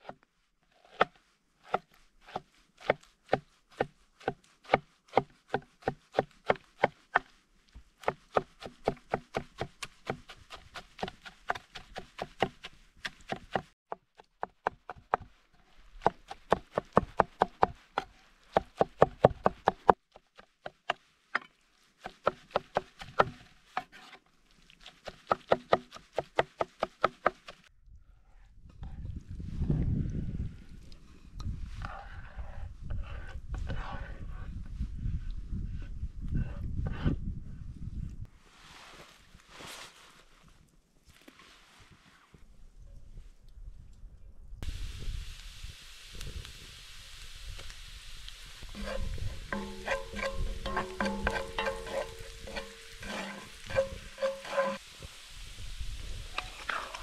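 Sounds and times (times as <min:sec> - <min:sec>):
knife chopping on wooden board: 0:48.8 - 0:54.8.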